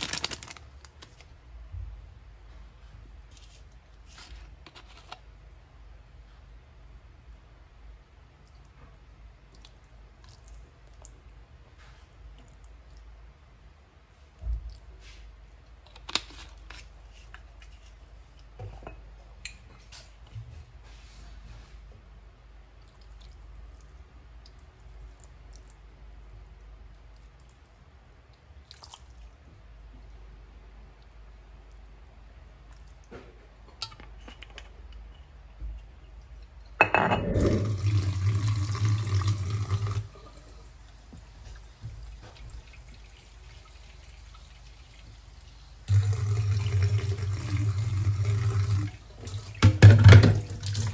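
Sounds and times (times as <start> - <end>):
bottles clicking and knocking: 36.8 - 37.6
water pouring into a wok: 37.4 - 40.3, 42.6 - 50.9.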